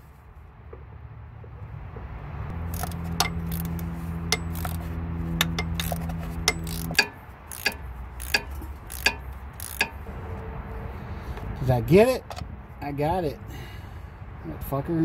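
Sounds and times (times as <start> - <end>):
ratchet clicking: 2.7 - 10.1.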